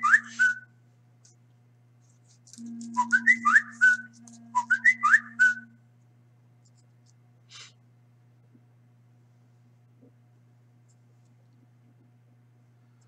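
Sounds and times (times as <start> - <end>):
person whistling a tune: 0.0 - 0.6, 2.6 - 5.8.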